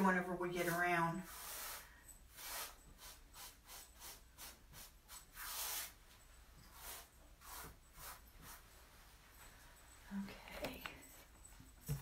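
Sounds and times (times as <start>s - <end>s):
paintbrush brushing rasps: 0.0s - 9.1s.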